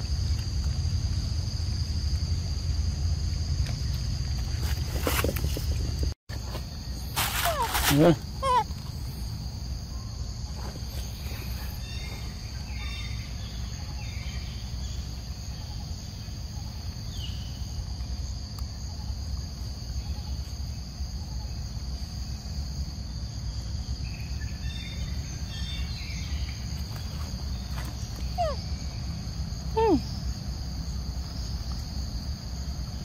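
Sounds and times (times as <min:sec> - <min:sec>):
low steady rumble: 0:00.0 - 0:07.1.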